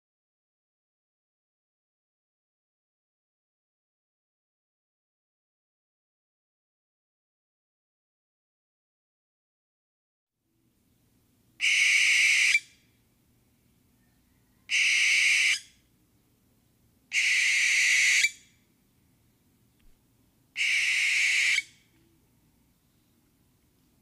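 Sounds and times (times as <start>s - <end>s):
owl screeching: 11.6s - 12.7s, 14.6s - 15.7s, 17.1s - 18.5s, 20.6s - 21.8s.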